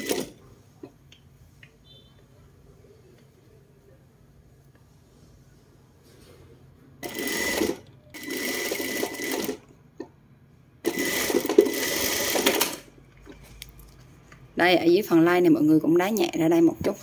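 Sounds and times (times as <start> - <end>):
sewing machine stitching: 0.0 - 0.4, 7.0 - 9.6, 10.9 - 12.9.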